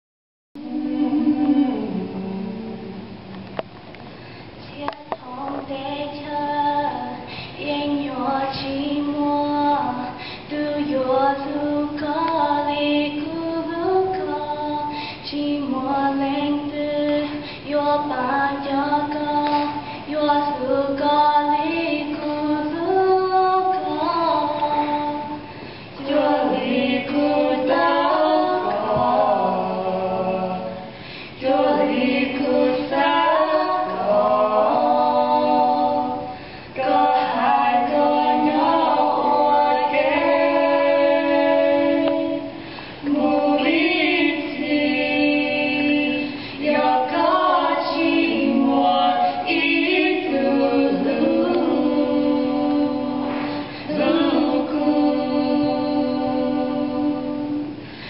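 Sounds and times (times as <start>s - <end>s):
young women singing together: 0.6s - 58.0s.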